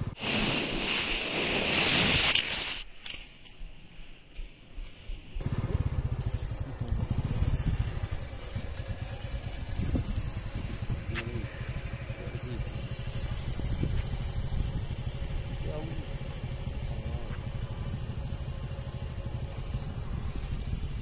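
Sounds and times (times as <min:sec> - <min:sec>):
wind buffeting microphone: 0:06.8 - 0:16.0, 0:17.4 - 0:21.0.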